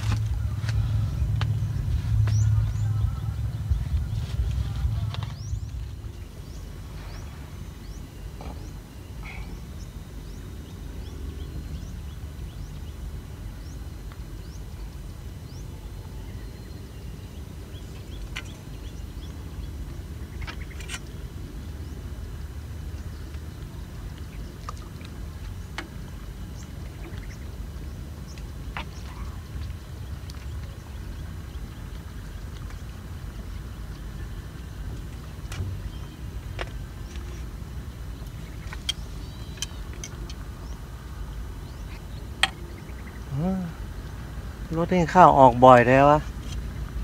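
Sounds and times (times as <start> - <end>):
wind buffeting microphone: 0.0 - 8.9.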